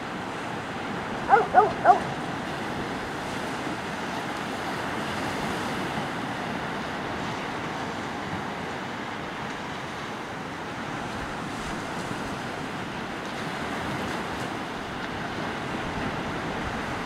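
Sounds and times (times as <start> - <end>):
ocean surf breaking on beach: 0.0 - 17.0.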